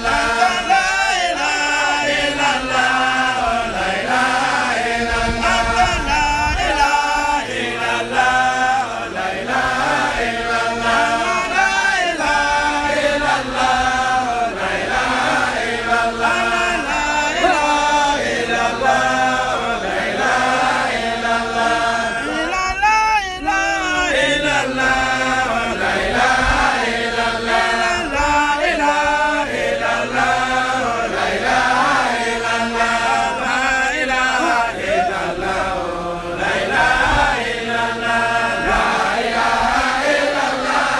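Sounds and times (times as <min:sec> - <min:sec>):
men chanting in unison: 0:00.0 - 0:40.9.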